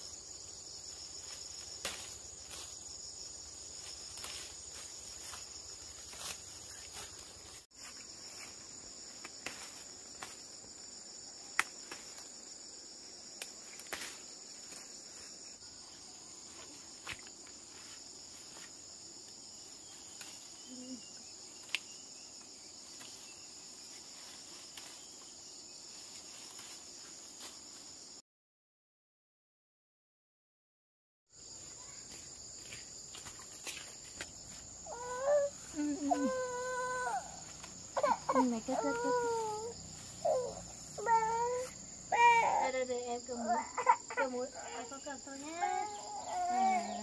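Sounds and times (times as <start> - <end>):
insects chorus: 0.0 - 28.2, 31.3 - 47.0
plants snapping when handled: 11.5 - 12.3, 13.4 - 14.8, 21.6 - 22.0.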